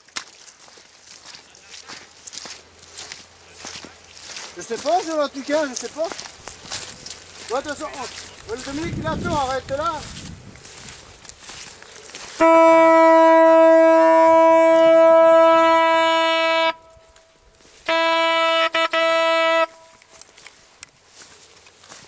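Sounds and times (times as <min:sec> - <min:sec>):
hunting horn blasts: 0:12.4 - 0:20.1.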